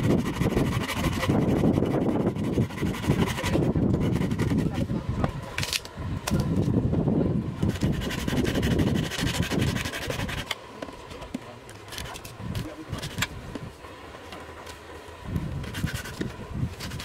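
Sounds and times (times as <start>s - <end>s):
knife scraping wood: 0.0s - 4.9s, 7.6s - 10.6s, 11.8s - 13.3s, 15.6s - 17.0s.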